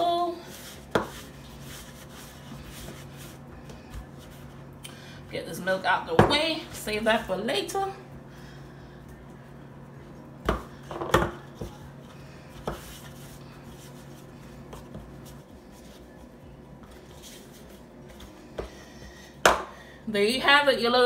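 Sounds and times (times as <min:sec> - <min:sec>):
hands kneading dough: 0:00.0 - 0:04.8, 0:09.0 - 0:19.7.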